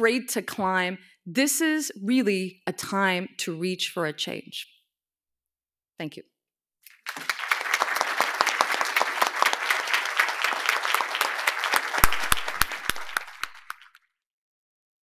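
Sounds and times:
audience applauding: 6.9s - 14.0s.

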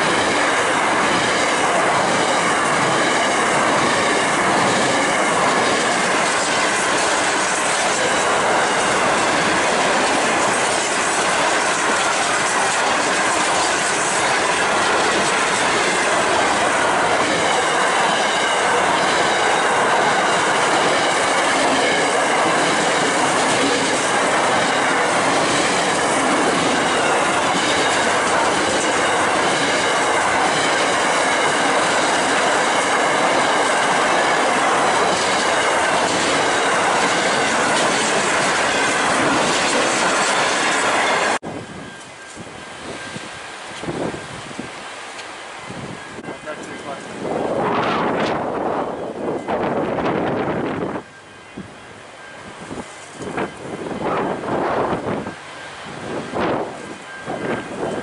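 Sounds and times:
train wheels rumbling on rails: 0.0s - 58.0s
high wheel squeal: 10.2s - 43.4s, 52.2s - 58.0s.

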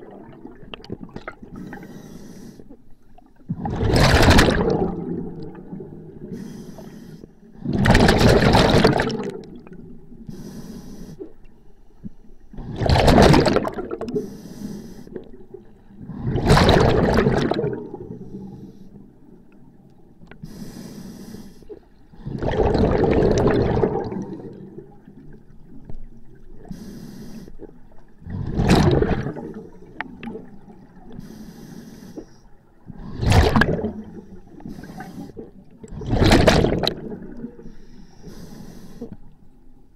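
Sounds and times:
gushes of exhaled bubbles: 0.0s - 1.5s, 3.5s - 6.3s, 7.6s - 9.8s, 12.6s - 14.2s, 16.0s - 18.4s, 22.2s - 25.8s, 28.2s - 31.1s, 32.9s - 37.7s.

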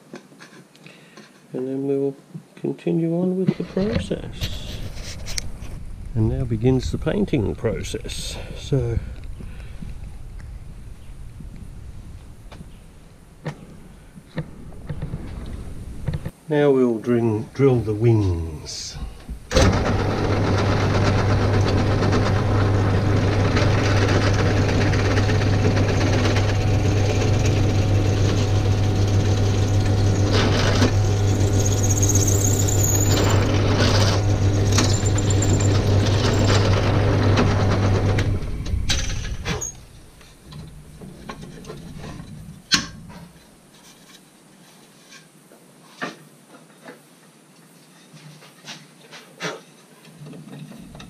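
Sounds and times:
drill press motor humming: 19.5s - 39.7s.

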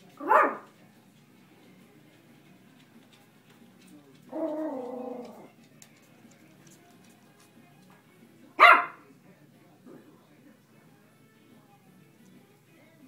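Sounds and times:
dog barking: 0.2s - 0.7s, 8.6s - 9.0s
dog growling: 4.3s - 5.6s.

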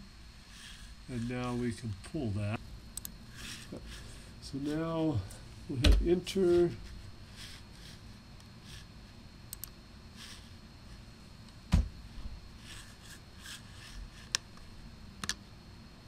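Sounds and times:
computer mouse clicks: 3.0s - 3.2s, 9.5s - 9.8s, 15.2s - 15.4s
dull knock: 11.7s - 11.9s.

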